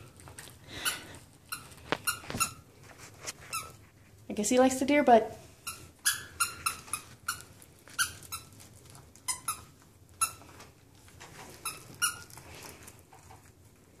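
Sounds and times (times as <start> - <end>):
dog chewing a toy: 0.0 - 4.1, 5.6 - 14.0
squeaky toy squeaks: 0.8 - 2.6, 5.6 - 8.6, 9.2 - 10.4, 11.6 - 12.3.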